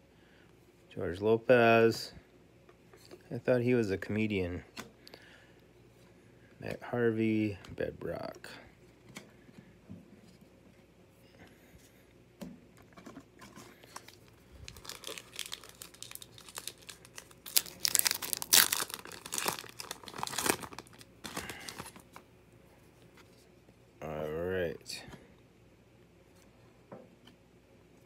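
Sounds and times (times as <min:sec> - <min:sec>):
card pack wrapper crinkling: 0:13.7 - 0:22.2.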